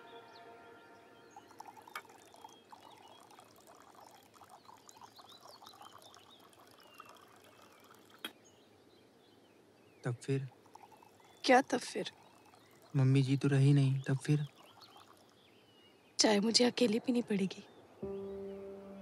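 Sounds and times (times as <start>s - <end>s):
tea trickling into cups: 1.2s - 8.4s, 9.8s - 16.7s.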